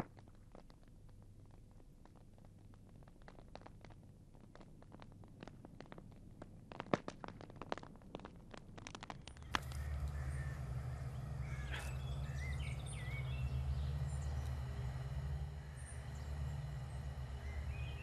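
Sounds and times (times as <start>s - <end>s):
wood fire crackling and popping: 0.0s - 12.8s, 13.4s - 18.0s
low steady hum: 9.3s - 18.0s.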